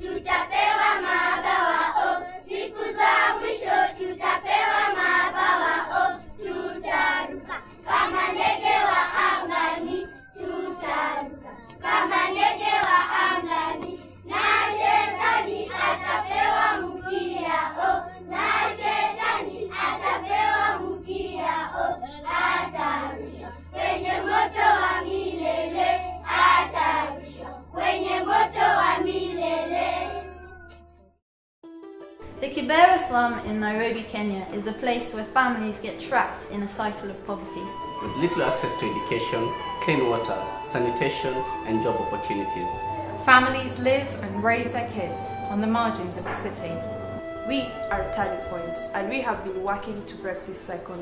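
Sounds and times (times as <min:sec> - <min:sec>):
children's choir singing: 0:00.0 - 0:30.2, 0:36.1 - 0:49.5
low accompaniment notes: 0:32.4 - 0:51.0.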